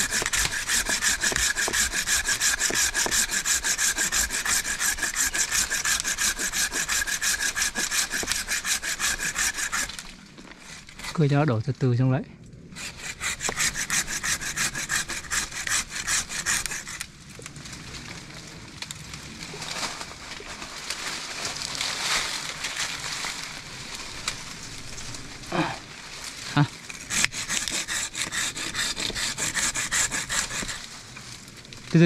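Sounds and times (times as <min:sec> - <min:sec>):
hand saw cutting wood: 0:00.0 - 0:10.0, 0:12.8 - 0:17.1, 0:26.9 - 0:31.0.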